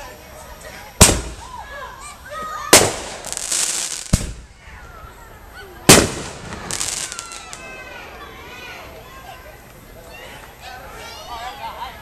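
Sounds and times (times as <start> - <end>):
firework hiss: 0.0 - 9.0
firework bangs: 1.0 - 1.6, 2.6 - 4.6, 5.8 - 8.2.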